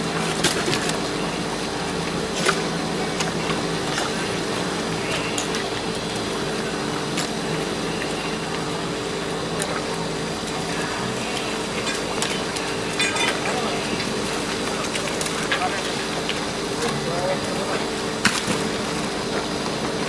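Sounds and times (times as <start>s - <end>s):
machine hum: 0.0s - 20.0s.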